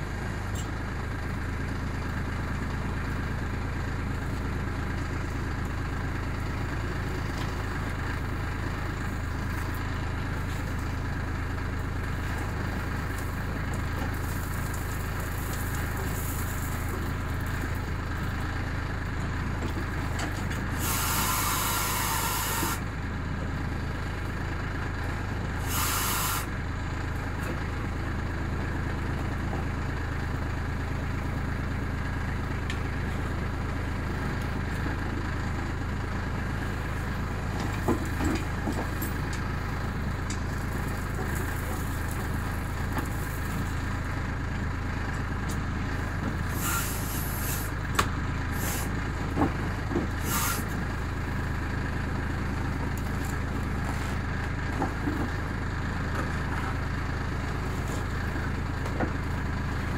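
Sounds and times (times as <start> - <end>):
diesel tractor engine running: 0.0 - 59.9
hydraulic oil hissing: 20.7 - 22.8, 25.6 - 26.5, 46.5 - 47.8, 48.5 - 49.0, 50.2 - 50.8.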